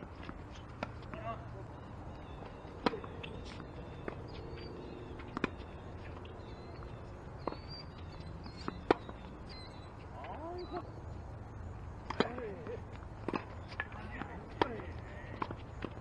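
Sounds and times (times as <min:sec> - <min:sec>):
tennis ball bouncing on court: 0:02.8 - 0:04.4, 0:05.2 - 0:06.4, 0:07.4 - 0:09.2, 0:12.1 - 0:16.0.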